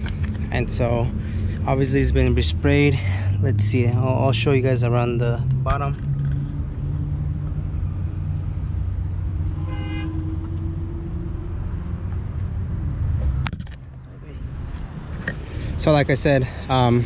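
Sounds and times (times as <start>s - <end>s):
low rumble of vehicles: 0.0s - 17.0s
car horn toot: 9.5s - 10.4s.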